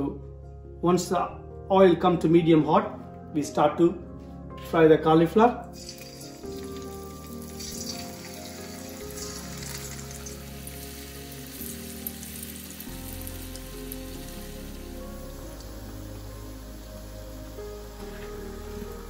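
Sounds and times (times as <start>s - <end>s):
soft background music: 0.0s - 19.0s
deep-frying sizzle in oil: 5.8s - 19.0s.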